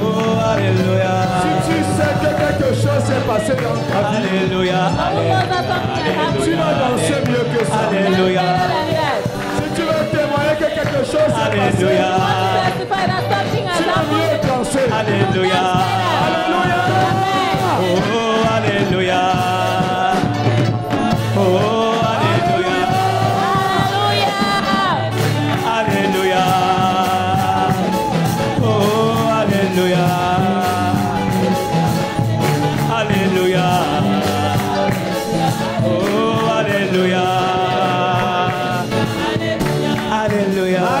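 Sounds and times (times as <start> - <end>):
band playing with steady beat: 0.0 - 41.0
voices singing: 0.0 - 41.0.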